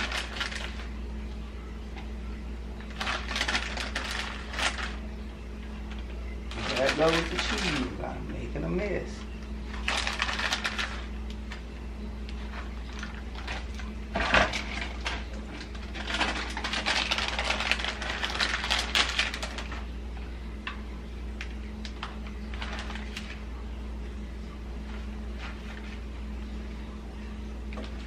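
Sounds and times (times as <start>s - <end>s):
plastic bag crinkling: 0.0s - 0.9s, 2.9s - 5.1s, 6.5s - 8.1s, 9.7s - 11.6s, 12.4s - 19.9s, 21.4s - 23.4s
low steady hum: 0.0s - 28.0s.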